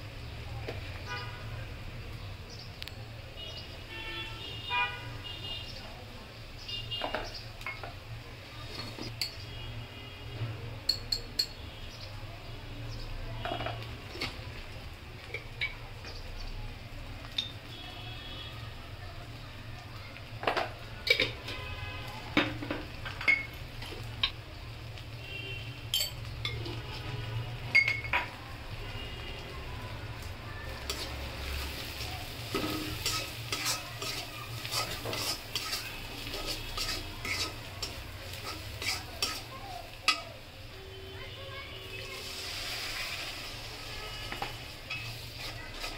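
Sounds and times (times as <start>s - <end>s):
onions sizzling in oil: 0.0s - 4.4s, 5.0s - 45.9s
spatula scraping a wok: 8.5s - 9.4s, 30.8s - 40.2s, 42.0s - 45.9s
metal spoon clinking on pan: 8.8s - 9.4s, 10.8s - 11.6s, 23.1s - 24.4s, 25.9s - 26.6s, 27.7s - 28.4s, 30.9s - 31.1s, 32.4s - 40.3s, 44.4s - 45.9s.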